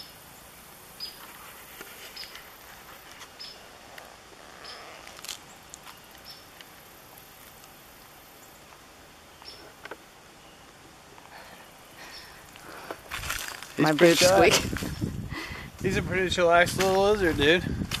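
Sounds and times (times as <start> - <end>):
boots squeaking: 1.0 - 6.6, 12.1 - 15.2
crunching underfoot: 1.1 - 7.8, 12.3 - 15.2, 15.8 - 18.0.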